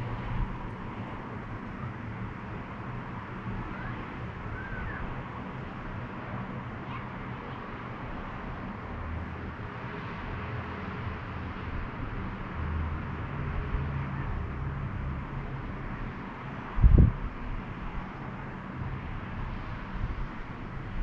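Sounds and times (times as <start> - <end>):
distant road traffic hum: 0.0 - 21.0.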